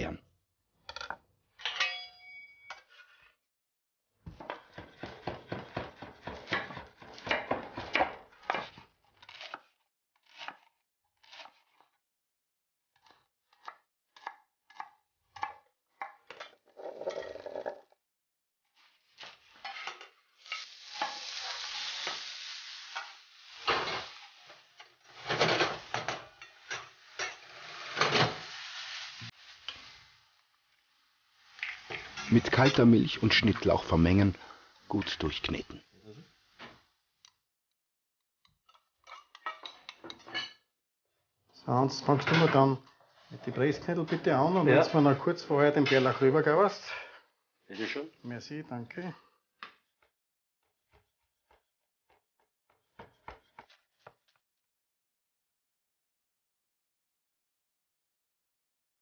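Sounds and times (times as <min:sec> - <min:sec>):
knife chopping on wooden board: 0:04.4 - 0:11.8, 0:13.0 - 0:16.2, 0:50.9 - 0:54.3
food sizzling in a frying pan: 0:18.7 - 0:37.2.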